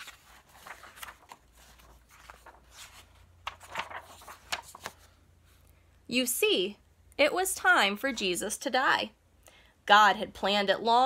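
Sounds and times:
paper pages turning: 0.0s - 5.2s.

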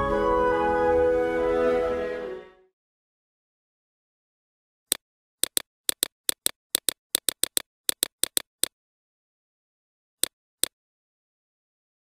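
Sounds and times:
mouse clicks: 5.4s - 8.7s.

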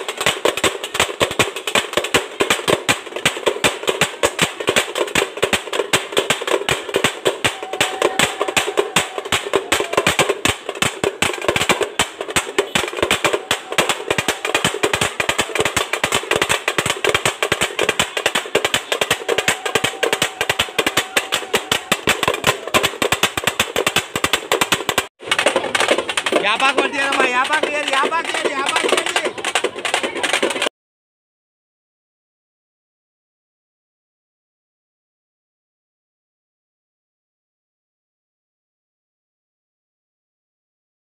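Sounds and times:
drums beating fast: 0.0s - 30.7s.

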